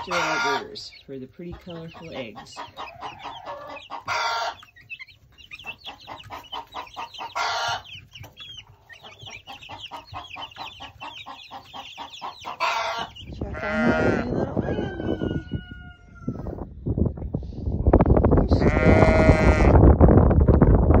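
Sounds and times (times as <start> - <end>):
chicks peeping: 0.0 - 21.0
louder longer chick calls: 2.7 - 4.8, 5.7 - 8.0, 11.1 - 16.6.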